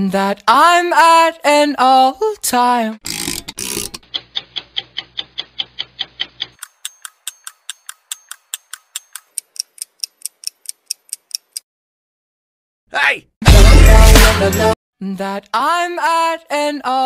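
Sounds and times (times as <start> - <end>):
clock-like ticking: 3.8 - 11.6.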